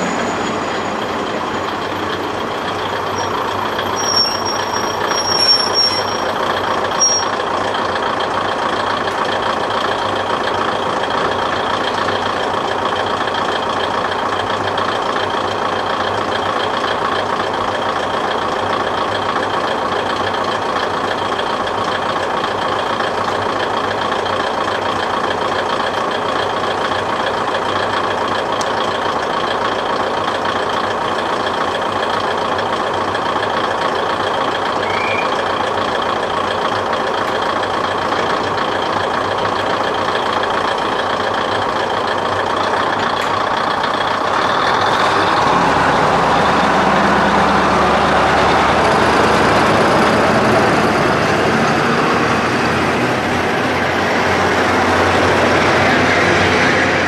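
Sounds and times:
diesel railcar engine idling: 0:00.0 - 0:57.0.

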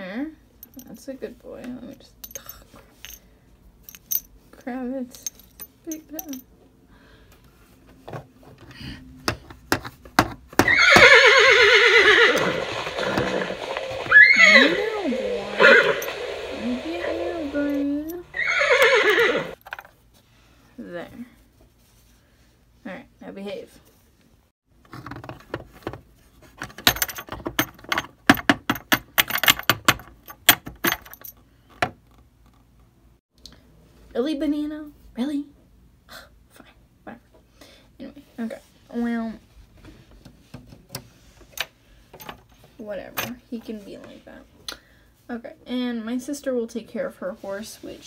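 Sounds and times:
horse whinny: 0:10.6 - 0:19.6
plastic toy scraping metal: 0:12.3 - 0:18.3.

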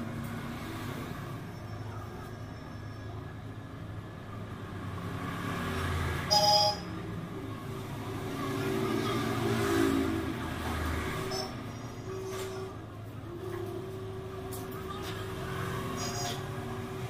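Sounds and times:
road traffic passing: 0:00.0 - 0:17.0
high-pitched beep: 0:06.3 - 0:06.9.

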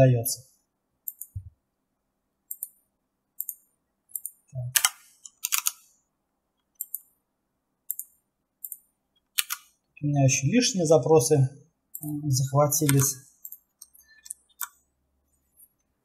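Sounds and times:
computer mouse clicks: 0:01.0 - 0:01.5, 0:02.5 - 0:02.8, 0:03.4 - 0:05.9, 0:06.6 - 0:07.1, 0:07.9 - 0:09.8, 0:12.8 - 0:14.8
keyboard key presses: 0:04.2 - 0:05.8, 0:09.4 - 0:09.7, 0:12.8 - 0:14.8.

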